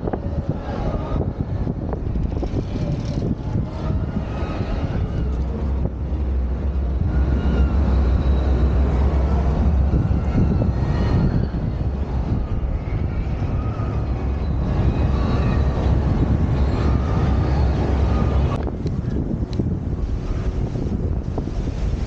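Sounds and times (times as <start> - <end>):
wind and gondola rumble: 0.0 - 22.0.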